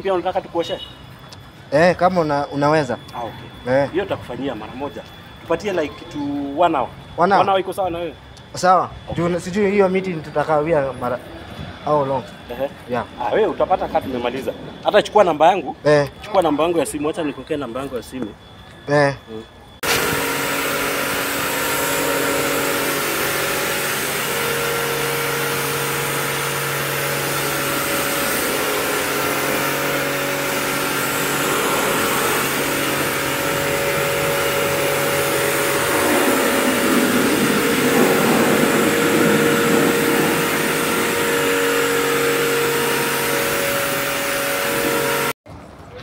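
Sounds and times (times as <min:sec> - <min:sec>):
pressure washer motor humming: 0:19.8 - 0:45.4
water jet spraying: 0:19.8 - 0:45.4.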